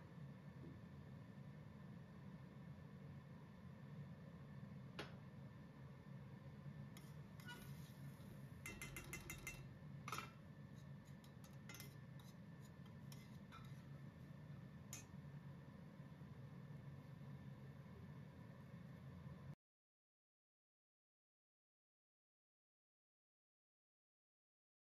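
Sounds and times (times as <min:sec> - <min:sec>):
metal spoon clinking in pan: 0:08.6 - 0:10.4, 0:11.2 - 0:12.3.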